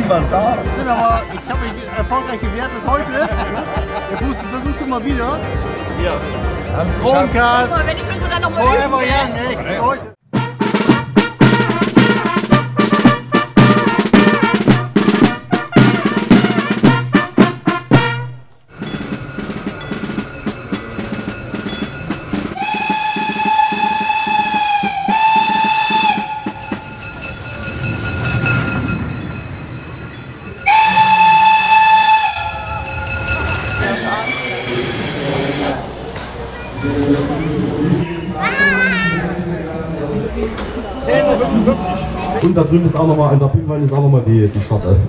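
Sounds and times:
music with strong beat: 10.3 - 25.5
train running: 11.6 - 38.2
steam locomotive whistle blasts: 22.6 - 28.9, 30.6 - 35.7.

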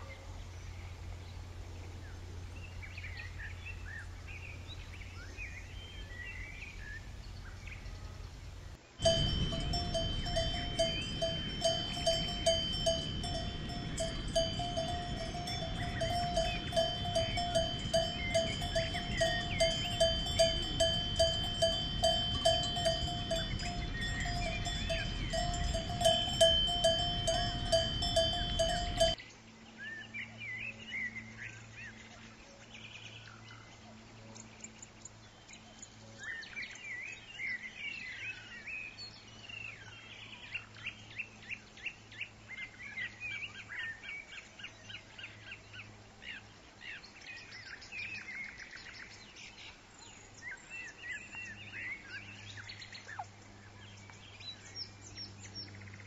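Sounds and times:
low rumble: 8.4 - 29.2
cowbell clanking: 9.0 - 29.2.

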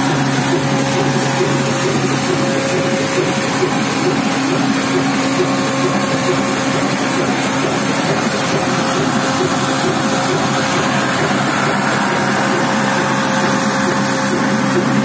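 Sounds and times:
stationary diesel engine running: 0.0 - 15.0.

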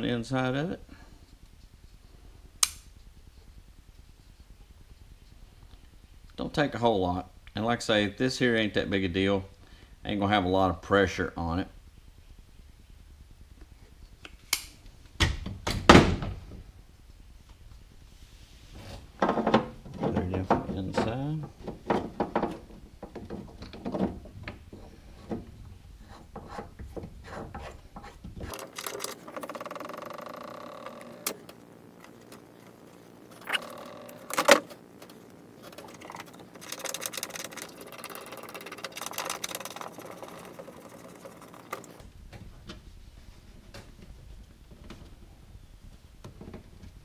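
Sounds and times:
sharp click: 2.6 - 2.9
scraping and rubbing of pipe fitting: 24.8 - 29.8.

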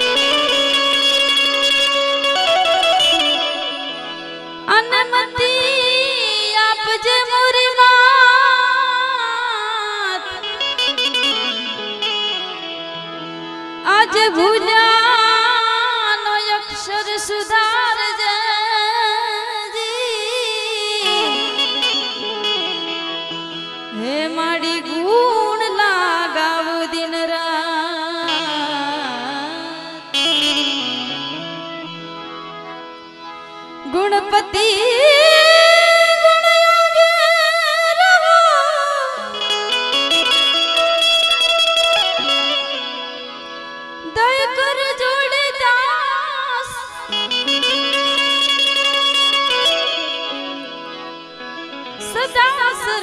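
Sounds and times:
instrumental accompaniment: 0.0 - 53.0
woman singing: 4.6 - 11.8, 13.8 - 23.1, 23.9 - 31.2, 33.8 - 42.8, 44.0 - 50.7, 52.0 - 53.0.

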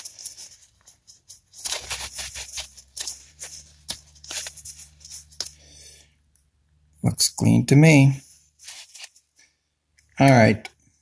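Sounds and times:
rubbing and scraping plastic: 0.0 - 5.7, 8.2 - 9.5.

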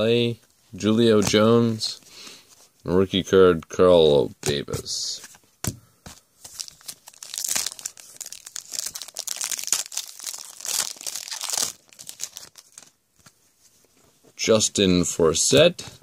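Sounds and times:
foil wrapper crinkling and tearing: 6.5 - 13.0.

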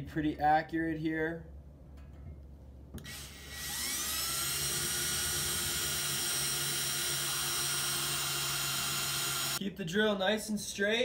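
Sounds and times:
cordless drill whining: 3.0 - 9.6.

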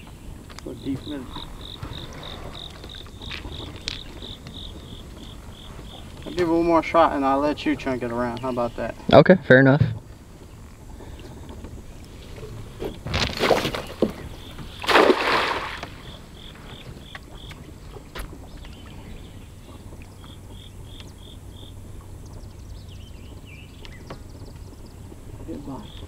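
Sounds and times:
net splashing on water: 14.8 - 16.0.

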